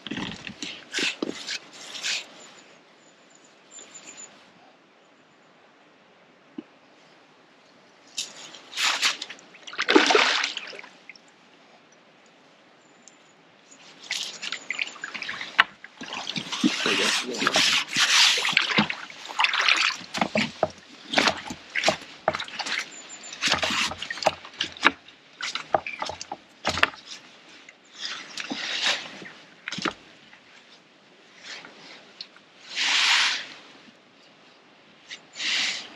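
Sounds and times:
wet net and tackle rustling: 8.2s - 10.8s, 13.9s - 27.4s, 28.0s - 30.8s
water splashing: 8.2s - 11.2s, 14.0s - 27.2s.

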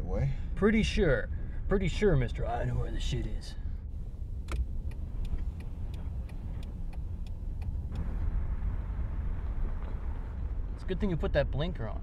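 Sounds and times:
car engine hum: 0.0s - 12.0s
steady rushing noise: 3.9s - 12.0s
car indicator ticking: 4.1s - 8.1s
turn-signal stalk click: 4.4s - 8.2s.

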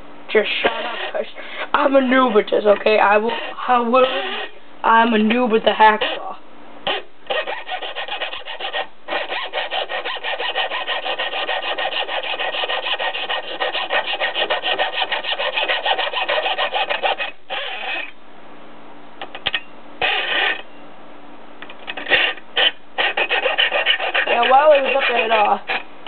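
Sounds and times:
hacksaw cutting metal: 6.9s - 18.1s, 22.0s - 25.8s.

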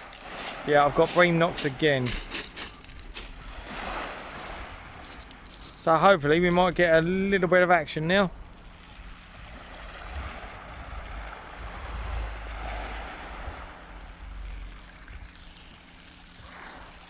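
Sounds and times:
small waves on shingle: 0.0s - 17.0s
wind on microphone: 9.2s - 15.4s.

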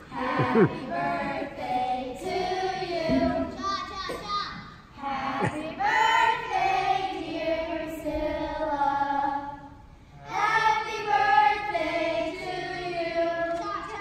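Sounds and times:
children singing: 10.3s - 14.0s.

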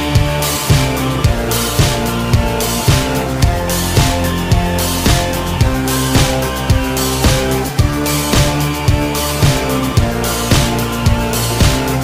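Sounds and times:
rock music with guitar and drums: 0.0s - 12.0s.

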